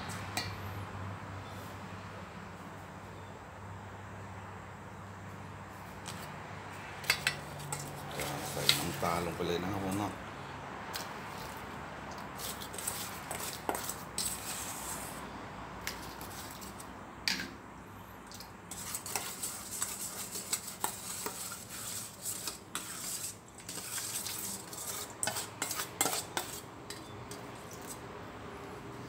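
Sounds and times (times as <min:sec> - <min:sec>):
metal spoon scraping steel bowl: 0:07.0 - 0:10.2, 0:12.4 - 0:15.2, 0:18.7 - 0:28.1.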